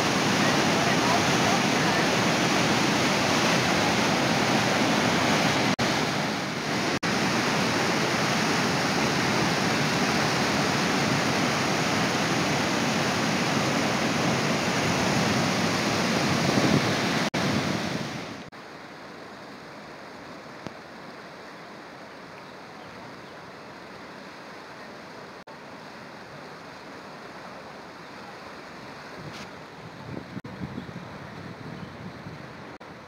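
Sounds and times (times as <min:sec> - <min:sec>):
whitewater rapids rushing: 0:00.0 - 0:22.3.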